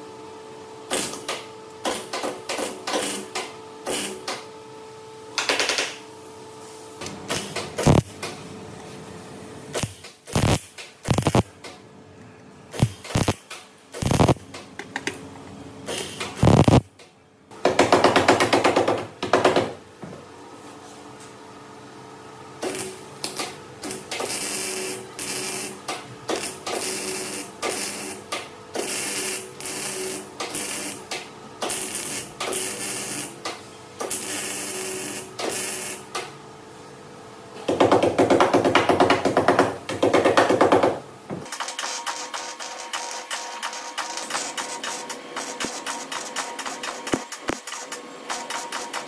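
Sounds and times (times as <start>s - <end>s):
welder crackling: 7.3s - 8.2s, 9.7s - 11.5s, 12.7s - 14.4s, 16.4s - 16.9s, 22.6s - 33.4s, 44.1s - 48.0s.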